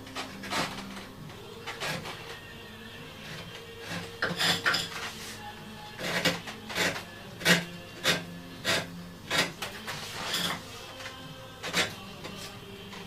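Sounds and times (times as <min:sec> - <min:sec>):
hand tool rasping on wood: 0:01.7 - 0:02.4, 0:03.2 - 0:10.7, 0:11.6 - 0:12.4.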